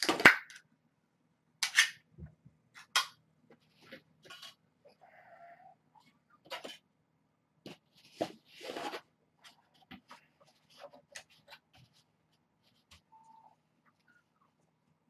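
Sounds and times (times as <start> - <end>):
rustling scrapes: 7.7 - 13.1.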